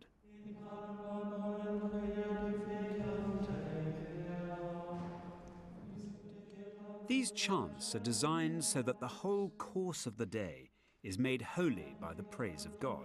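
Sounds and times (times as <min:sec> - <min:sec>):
man chanting plainchant: 0:07.1 - 0:13.0.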